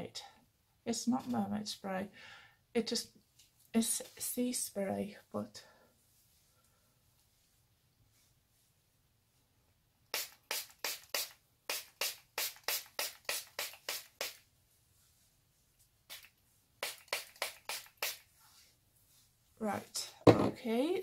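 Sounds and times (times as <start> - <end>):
spray bottle spritzing: 10.1 - 14.4, 16.1 - 18.3.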